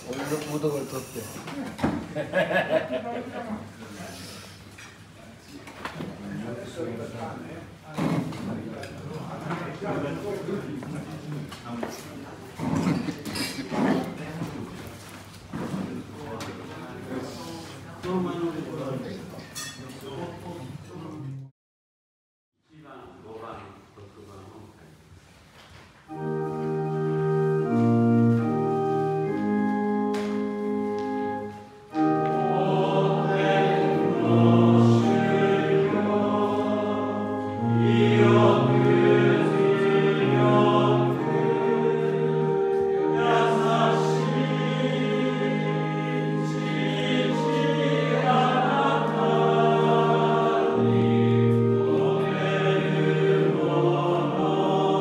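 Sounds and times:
group of voices singing a hymn: 26.1 - 55.0
held organ chords: 26.1 - 55.0.

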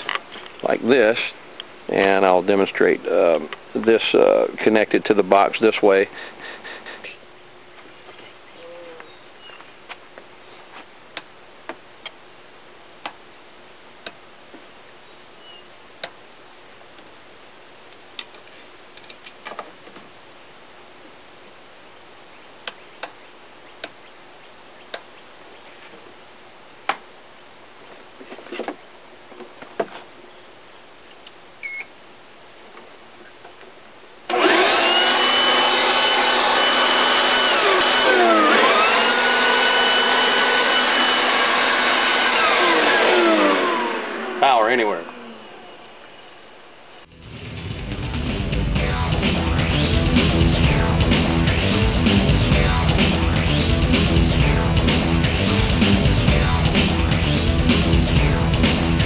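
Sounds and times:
electric leaf blower whining: 34.3 - 47.0.

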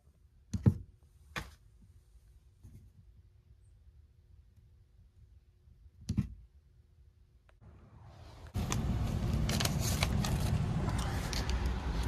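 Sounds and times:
steady low rumble: 7.6 - 12.0.

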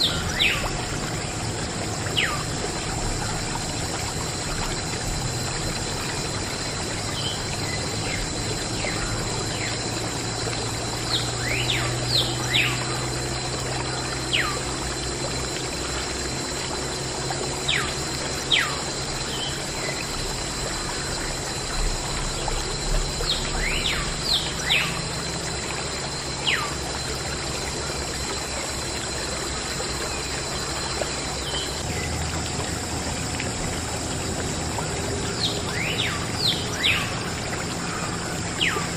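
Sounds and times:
water trickling in thin stream: 0.0 - 38.9
birds chirping: 34.8 - 38.9.

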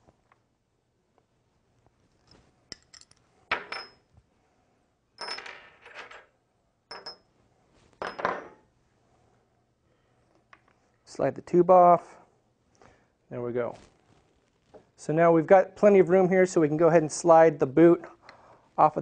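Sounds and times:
small metal parts clinking: 2.2 - 4.0.

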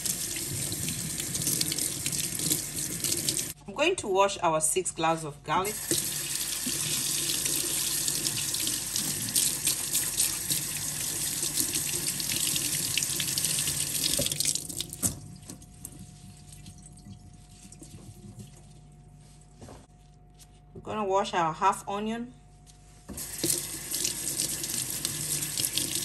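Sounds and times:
tap water splashing into sink: 5.8 - 7.0, 13.9 - 15.6, 23.1 - 26.0
water dripping: 11.4 - 15.9.

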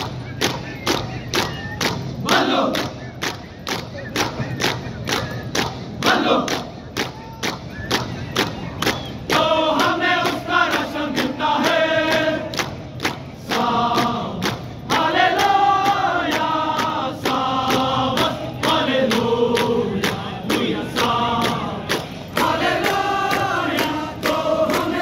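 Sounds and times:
soldiers chanting in unison: 2.2 - 3.0, 6.0 - 6.7, 9.3 - 12.8, 13.4 - 25.0
sharp rhythmic strikes: 9.2 - 25.0.

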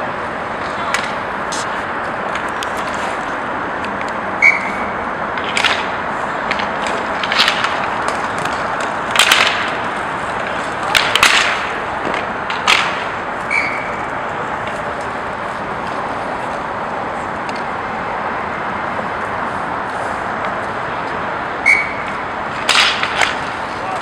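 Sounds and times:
sticks and puck clacking: 0.0 - 17.8, 18.5 - 24.0
skate wheels hissing: 0.0 - 24.0
short high squeaks: 4.4 - 4.9, 13.5 - 14.0, 21.6 - 22.1.

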